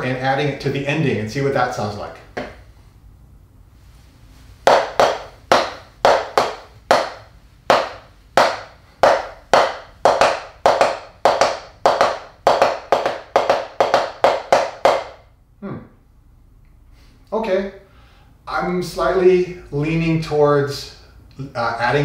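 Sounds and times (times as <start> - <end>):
drumsticks striking practice pad: 4.7 - 15.2.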